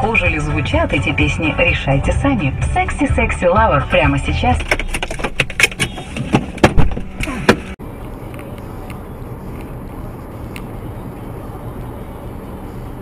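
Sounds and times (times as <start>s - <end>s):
car road and engine noise: 0.0s - 13.0s
sharp knocks and clatters: 4.6s - 7.8s.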